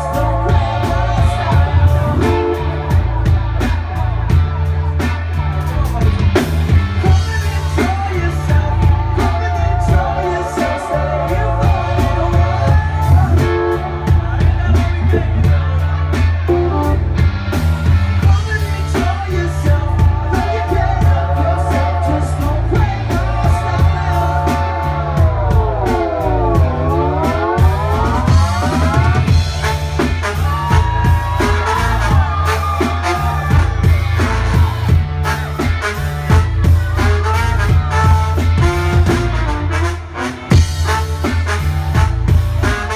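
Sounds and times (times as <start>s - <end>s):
live band playing: 0.0s - 42.9s
trombone and trumpet melody: 16.5s - 17.1s, 22.3s - 42.9s.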